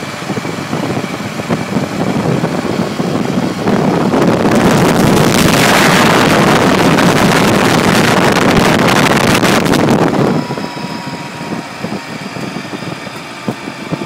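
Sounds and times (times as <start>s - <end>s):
motorcycle engine running: 0.0s - 14.0s
wind rushing over microphone: 0.0s - 14.0s.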